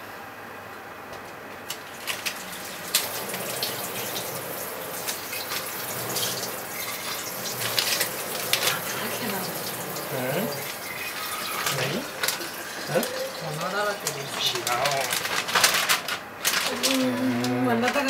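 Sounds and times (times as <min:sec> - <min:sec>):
tap water running into sink: 0:01.7 - 0:15.5.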